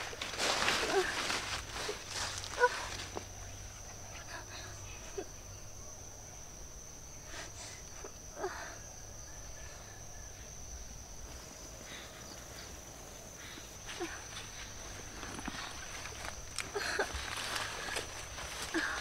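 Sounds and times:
leaves rustling: 0.0 - 5.3, 10.5 - 19.0
crickets droning: 0.0 - 19.0.

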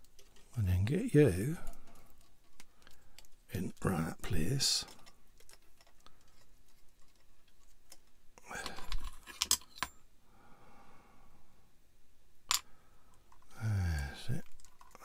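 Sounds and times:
plastic parts rustling and clicking: 0.0 - 0.6, 1.4 - 10.0, 12.5 - 15.0.

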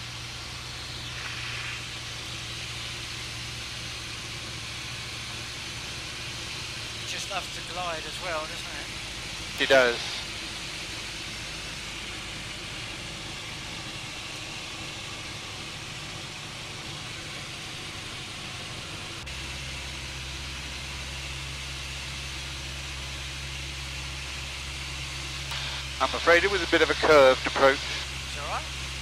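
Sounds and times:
aircraft engine near idle: 0.0 - 29.0
hiss of airflow: 0.6 - 3.3.

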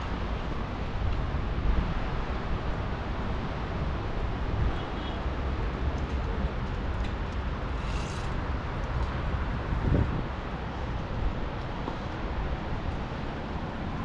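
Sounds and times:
brief hiss: 7.7 - 8.4.

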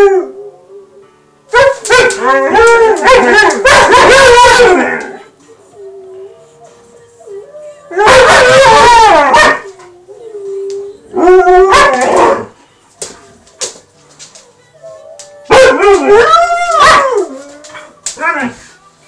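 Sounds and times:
dogs howling: 1.6 - 12.6, 14.8 - 18.6.

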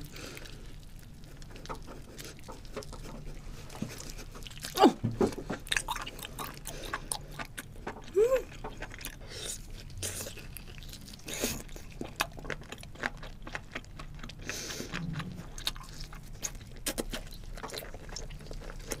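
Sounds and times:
person chewing wetly: 0.0 - 19.0
person humming: 8.1 - 8.5.

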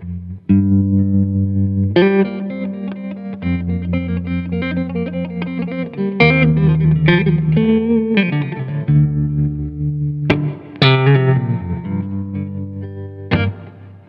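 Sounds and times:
held bass notes: 0.0 - 13.7
plucked electric guitar: 0.0 - 14.0.

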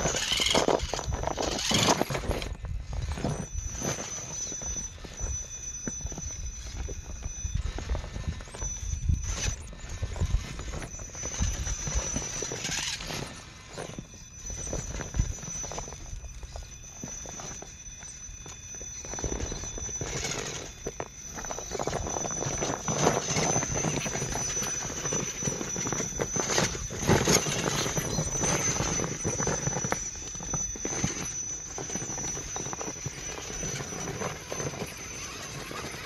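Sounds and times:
tyres scrabbling on rock: 0.0 - 5.3, 19.0 - 36.0
electric motors driving: 0.0 - 36.0
steady high whine: 0.0 - 36.0.

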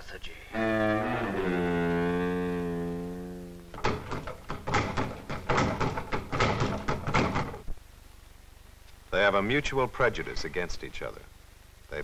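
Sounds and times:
low bowed-string note: 0.5 - 4.2.

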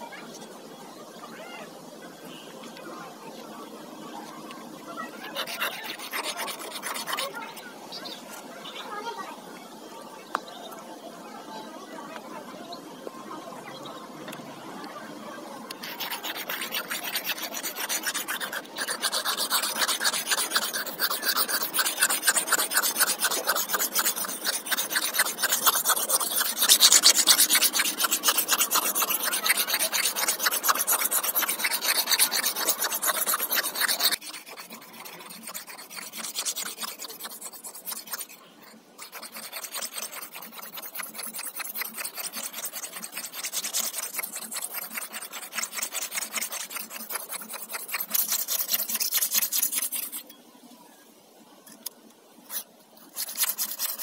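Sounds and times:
knife scraping sharpening stone: 5.3 - 7.3, 15.8 - 38.3, 39.0 - 50.2, 53.1 - 54.0.

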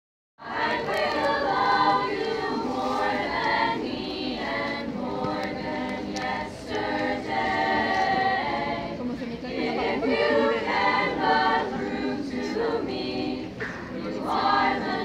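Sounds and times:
girls' choir singing a cappella: 0.4 - 15.0.

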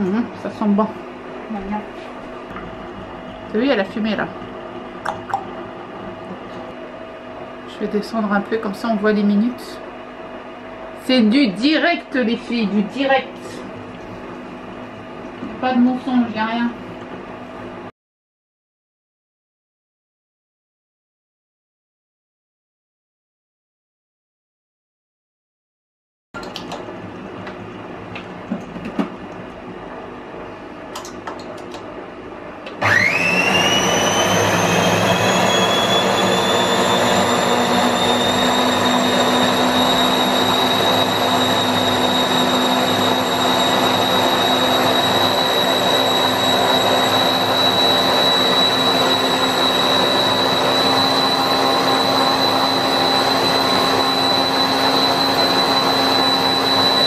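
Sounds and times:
blender motor whining: 32.8 - 57.0.

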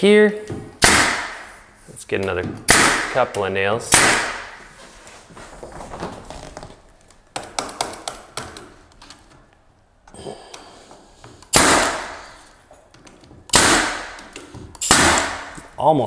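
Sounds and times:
nail gun shots: 0.8 - 1.5, 2.6 - 3.3, 3.9 - 4.6, 11.5 - 12.4, 13.5 - 15.6.

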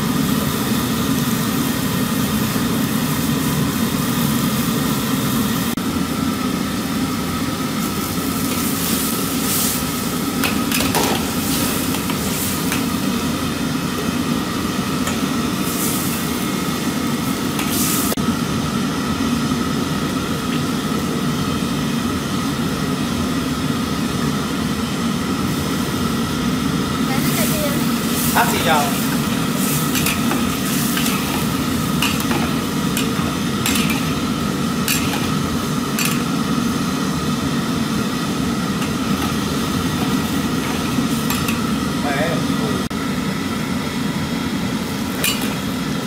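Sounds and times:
gas burner roaring: 0.0 - 46.0
vegetables sizzling: 7.5 - 18.2, 25.4 - 42.8, 44.8 - 46.0.

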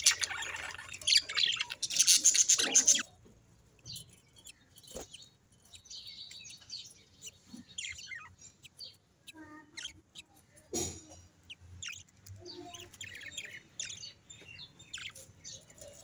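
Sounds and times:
budgerigar chattering: 0.0 - 3.1
faint high chirps: 3.8 - 16.0.

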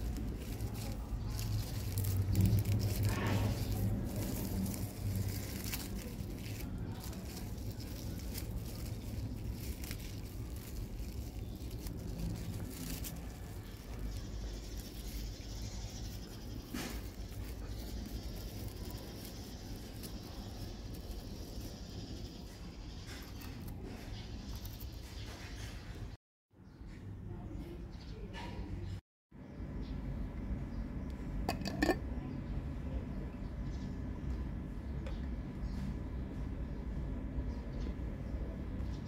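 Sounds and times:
leaves rustling and tapping: 0.0 - 25.8.

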